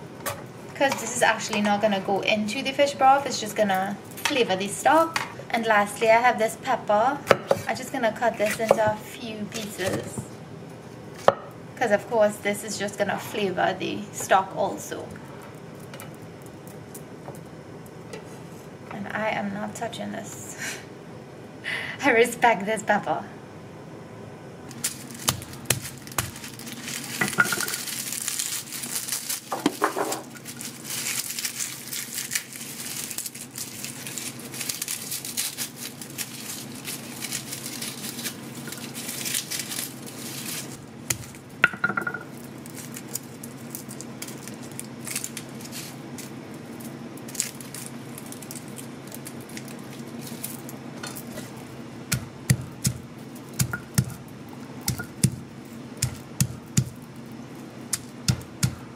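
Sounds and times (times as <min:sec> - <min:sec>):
papery garlic skins crinkling: 0:24.7 - 0:41.6, 0:42.2 - 0:58.9
stone crushing garlic on board: 0:25.2 - 0:26.4, 0:41.1 - 0:42.3, 0:52.1 - 0:54.2, 0:54.8 - 0:55.4, 0:56.0 - 0:57.0, 0:57.9 - 0:58.9.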